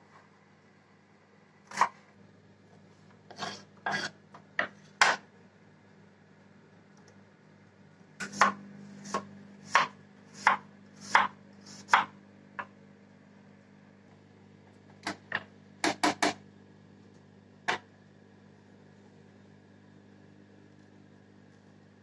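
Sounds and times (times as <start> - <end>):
knife chopping on wooden board: 3.3 - 5.2, 8.2 - 12.7.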